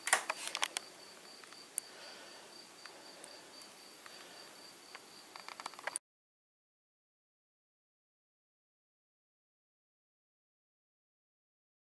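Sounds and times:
sharp clicks: 0:00.0 - 0:01.9, 0:04.9 - 0:06.0
cricket chirping: 0:00.1 - 0:06.0.

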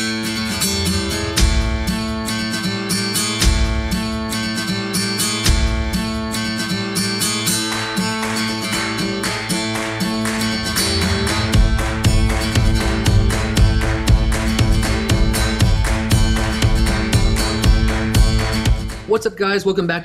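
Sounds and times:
acoustic guitar music: 0:00.0 - 0:19.5
deep bass note: 0:11.6 - 0:19.1.

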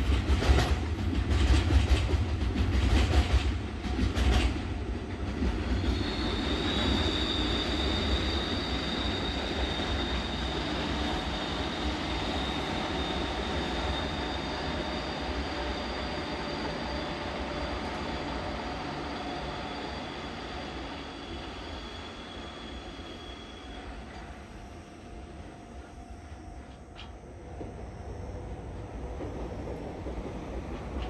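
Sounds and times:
freight train rumbling: 0:00.0 - 0:31.0
high wheel squeal: 0:05.8 - 0:24.3.

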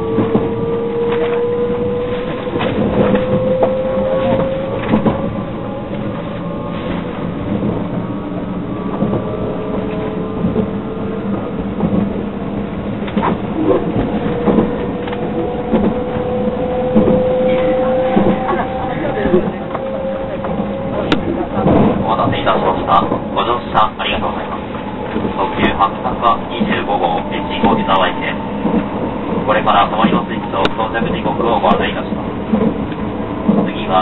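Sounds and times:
electric train motors whining: 0:00.0 - 0:34.0
train car rumble: 0:00.0 - 0:34.0.

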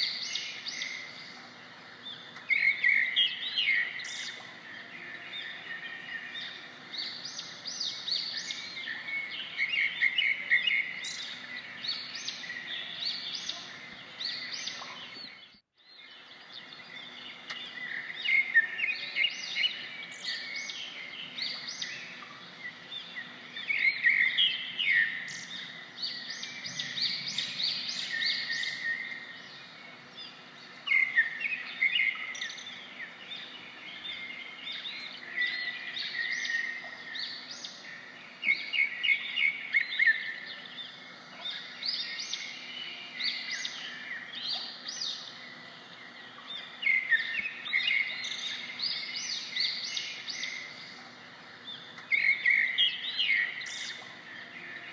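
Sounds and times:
birds chirping and singing: 0:00.0 - 0:54.9
faint outdoor background: 0:00.0 - 0:54.9.

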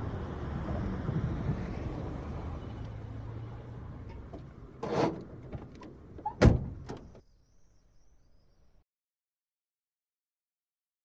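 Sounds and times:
thump: 0:04.8 - 0:07.2.

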